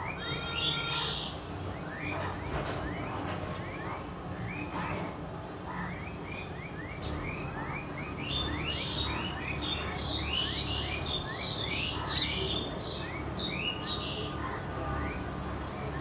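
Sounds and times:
sparrows chirping: 0.0s - 16.0s.

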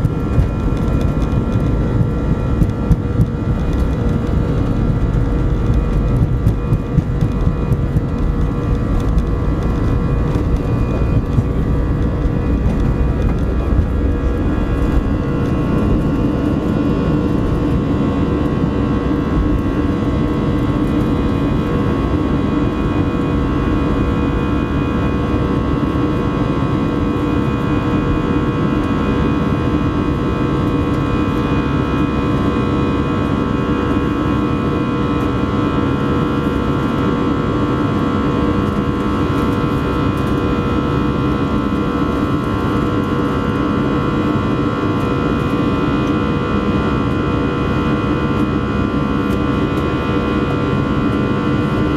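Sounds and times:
engine fan whine: 0.0s - 51.9s
jet engines at takeoff thrust: 0.0s - 51.9s.

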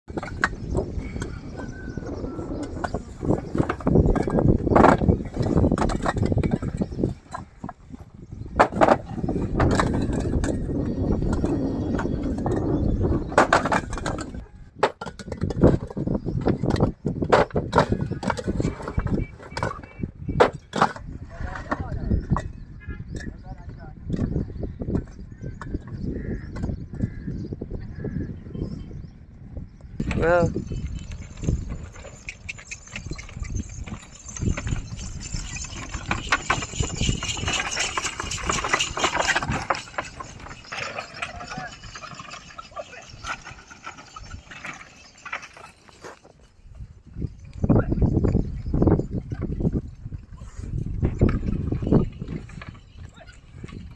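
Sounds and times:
hooves clopping: 0.1s - 14.4s, 30.0s - 53.9s
wooden carts clattering: 0.1s - 27.2s, 30.0s - 53.9s
bricks clinking together: 30.0s - 46.3s.

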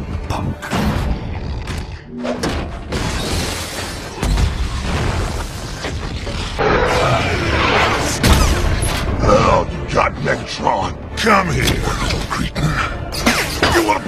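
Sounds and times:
explosions and booms: 2.6s - 9.2s.

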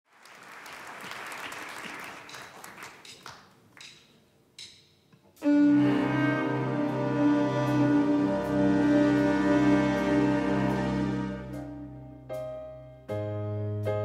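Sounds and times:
audience applause: 0.1s - 3.4s
live band playing: 5.4s - 12.6s.

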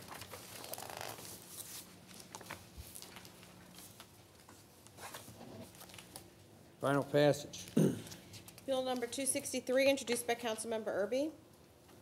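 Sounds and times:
papers rustling: 0.0s - 6.3s.

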